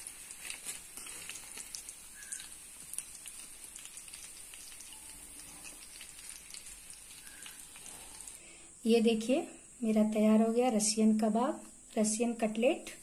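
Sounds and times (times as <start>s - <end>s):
hot oil sizzling in a pan: 0.0s - 8.4s
oil crackling and popping: 0.0s - 8.4s.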